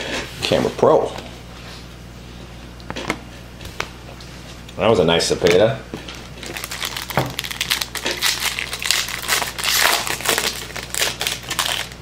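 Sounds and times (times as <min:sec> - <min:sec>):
plastic wrapper crinkling: 0:06.4 - 0:12.0.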